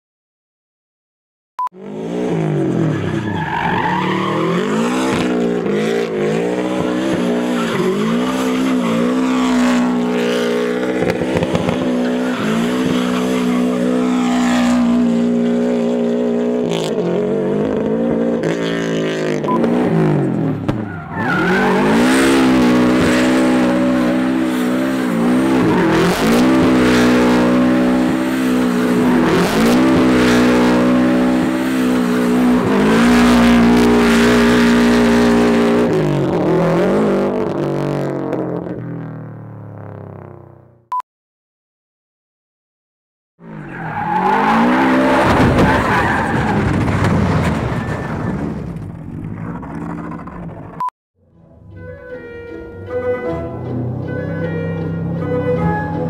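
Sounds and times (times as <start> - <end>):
car engine at high revs: 1.8 - 38.8
tyres squealing and skidding: 2.0 - 37.2, 43.4 - 50.8, 51.7 - 56.0.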